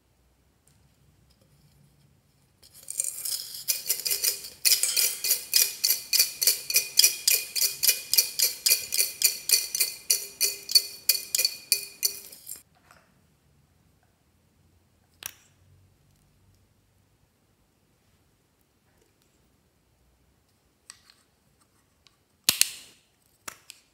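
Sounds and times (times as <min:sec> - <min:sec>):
glitter rattling inside a can: 0:02.6 - 0:12.6.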